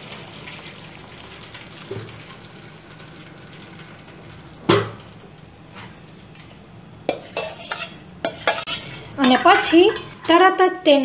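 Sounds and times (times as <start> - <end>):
water draining through strainer: 0.0 - 5.2.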